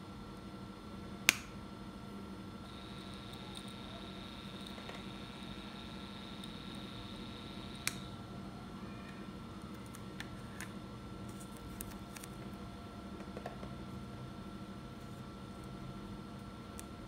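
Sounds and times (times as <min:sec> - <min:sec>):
steady low hum: 0:00.0 - 0:17.0
faint high whine: 0:02.6 - 0:09.1.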